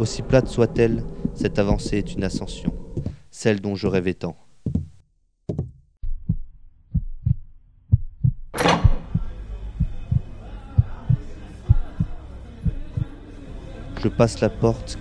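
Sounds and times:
heartbeat thumps: 0.0 - 3.3, 4.6 - 13.1
dense background sound: 0.0 - 4.4.

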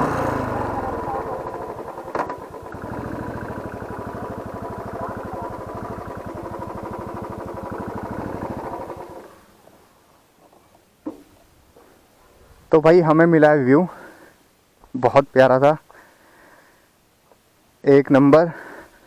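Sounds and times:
motorcycle engine idling: 0.0 - 9.8.

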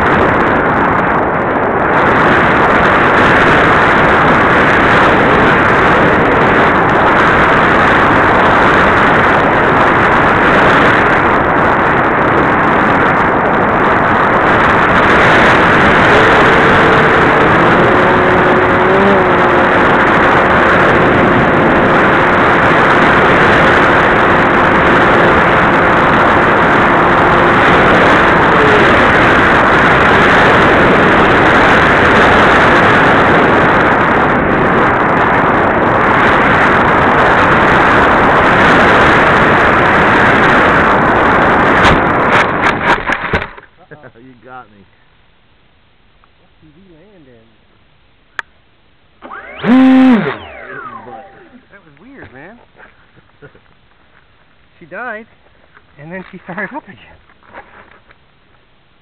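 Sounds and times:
wind rushing: 0.0 - 43.6, 49.2 - 52.6
propeller motor noise: 0.0 - 44.8, 46.0 - 58.8
faint two-note tone: 50.8 - 51.6.

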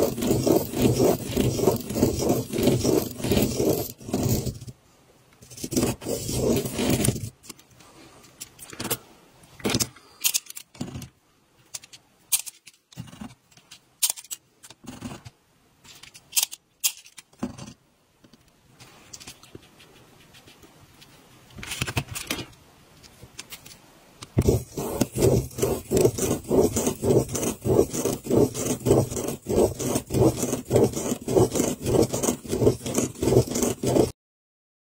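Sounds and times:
pen scratching on paper: 0.0 - 4.7, 5.4 - 7.4, 24.4 - 34.2.

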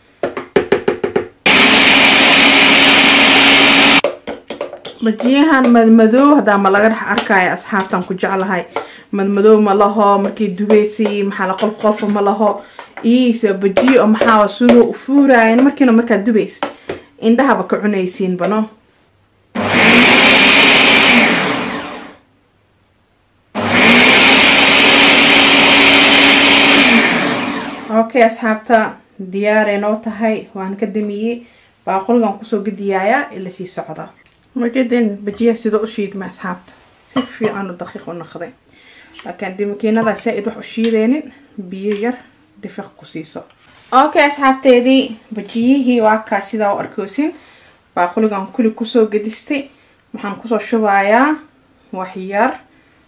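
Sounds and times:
blender grinding: 1.5 - 4.1, 19.6 - 22.2, 23.6 - 28.0.

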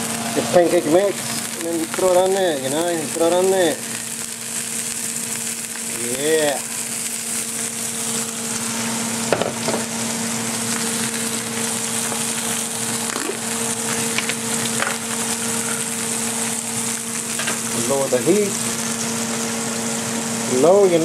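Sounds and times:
batter sizzling in a pan: 0.0 - 21.0.

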